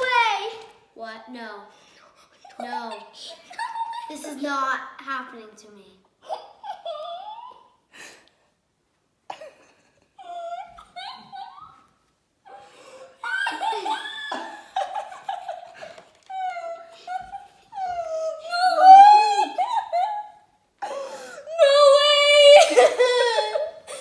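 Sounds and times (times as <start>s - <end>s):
girl laughing: 2.4s - 4.4s, 6.2s - 7.8s, 9.3s - 12.6s, 13.2s - 20.5s, 21.6s - 24.0s
girl squealing and sobbing: 2.4s - 4.4s, 6.2s - 7.9s, 10.2s - 24.0s.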